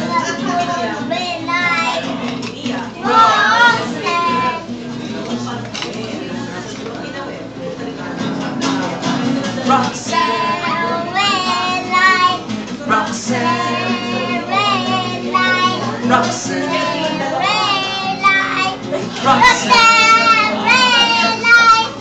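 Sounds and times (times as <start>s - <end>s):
boy singing: 0.0s - 4.8s, 9.6s - 22.0s
acoustic guitar strumming: 0.0s - 6.8s, 7.9s - 22.0s.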